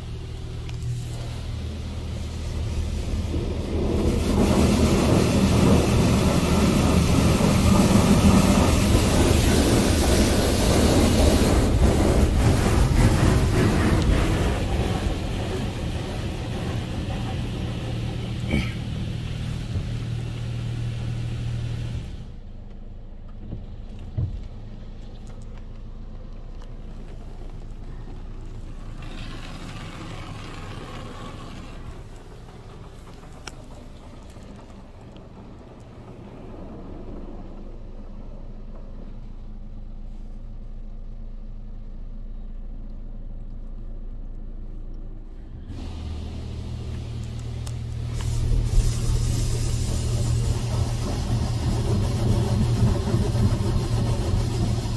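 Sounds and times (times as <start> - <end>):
water jets spraying onto car: 0.0 - 22.4, 24.8 - 38.0, 45.7 - 54.9.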